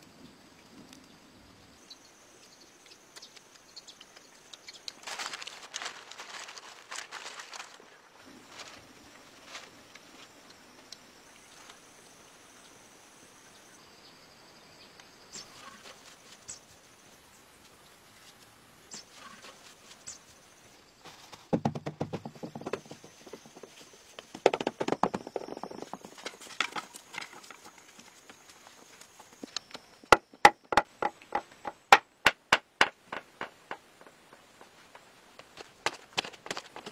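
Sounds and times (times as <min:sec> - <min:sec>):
stones and wood knocking: 0:21.4 - 0:28.4, 0:29.4 - 0:36.9
rapid clattering knocks: 0:24.3 - 0:26.8, 0:30.1 - 0:34.1.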